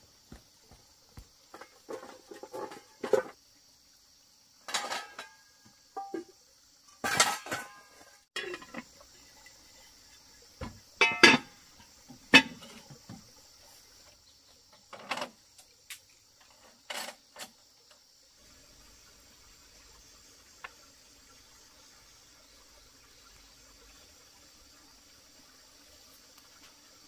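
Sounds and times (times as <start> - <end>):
high insect hum: 0.0 - 27.0
dishes and utensils clinking: 4.7 - 5.4, 7.0 - 8.9, 11.0 - 11.5.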